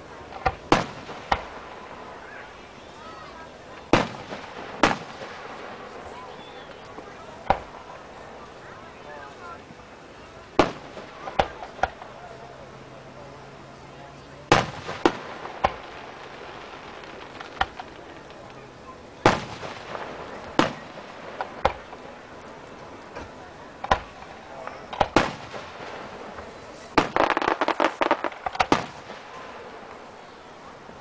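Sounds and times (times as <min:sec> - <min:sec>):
fireworks bursting: 0:00.0 - 0:09.4, 0:10.0 - 0:12.2, 0:14.5 - 0:31.0
crackling pops: 0:00.3 - 0:02.2, 0:03.8 - 0:06.0, 0:06.6 - 0:07.9, 0:10.5 - 0:12.2, 0:14.5 - 0:30.2.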